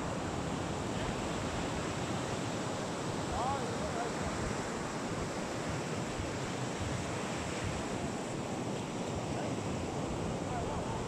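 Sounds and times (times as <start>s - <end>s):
sea surf on a beach: 0.0s - 11.0s.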